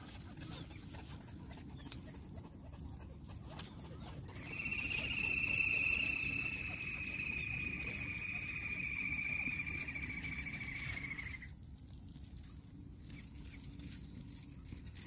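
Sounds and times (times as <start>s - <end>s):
insect trilling: 3.9s - 15.0s.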